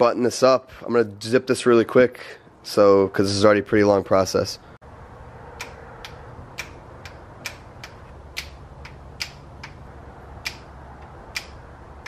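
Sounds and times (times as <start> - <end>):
hand ratchet clicking: 5.6 - 11.6.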